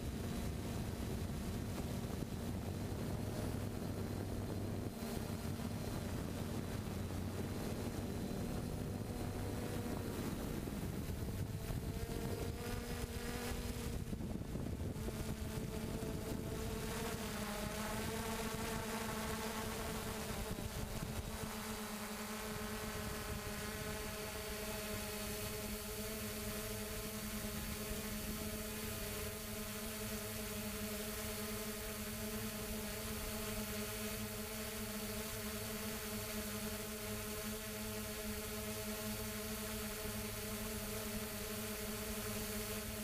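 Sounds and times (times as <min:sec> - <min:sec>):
wind rumble on microphone: 0:00.0 - 0:33.8
quadcopter motors droning: 0:00.0 - 0:43.0.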